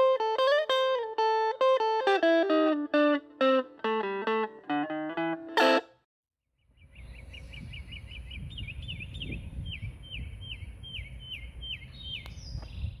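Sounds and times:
songbird chirping: 6.5 - 13.0
wind rumble on microphone: 6.8 - 13.0.

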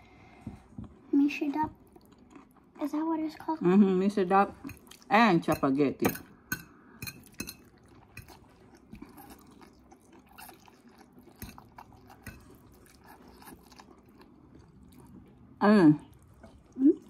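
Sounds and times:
chewing noodles: 1.8 - 3.5, 7.2 - 17.0.

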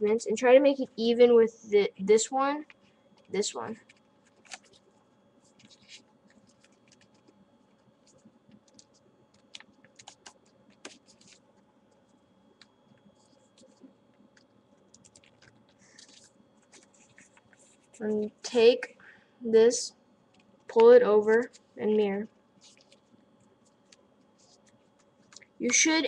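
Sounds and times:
paper being folded: 3.9 - 7.4, 8.0 - 11.5, 14.9 - 18.2, 22.6 - 25.8.

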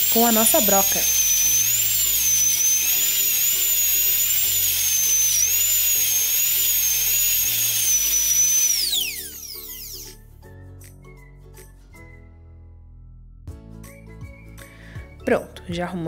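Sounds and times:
toy dental drill whining: 0.0 - 10.2.

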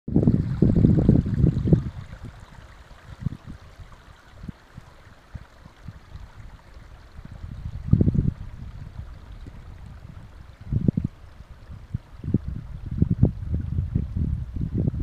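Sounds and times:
wind buffeting microphone: 0.1 - 15.0.

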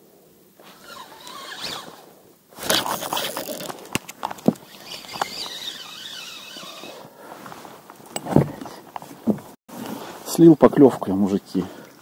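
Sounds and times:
rustling with sharp clicks: 2.6 - 9.6
spinning reel winding: 4.7 - 7.0.

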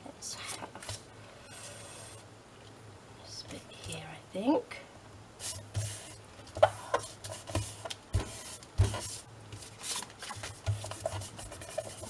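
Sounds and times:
paper rustling: 6.6 - 12.0.

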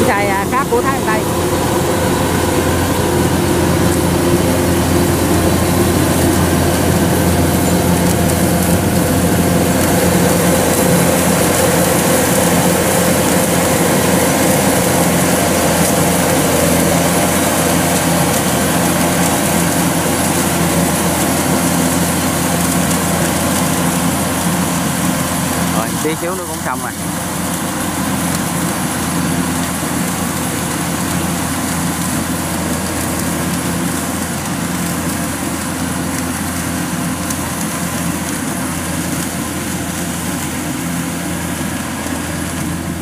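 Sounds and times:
combine harvester drone: 0.0 - 43.0.

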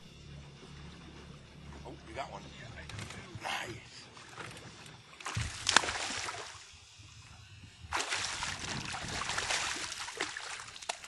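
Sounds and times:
fish thrashing and splashing: 4.2 - 6.7, 7.9 - 11.0.

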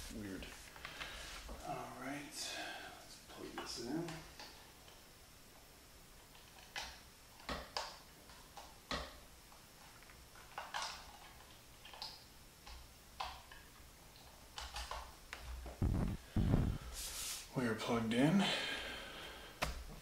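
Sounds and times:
cable rustling: 14.2 - 17.3.

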